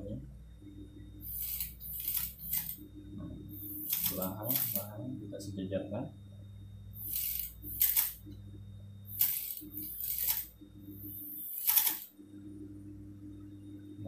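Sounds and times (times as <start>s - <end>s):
sewing machine motor hum: 1.2s - 5.1s, 6.9s - 8.3s, 9.0s - 12.1s.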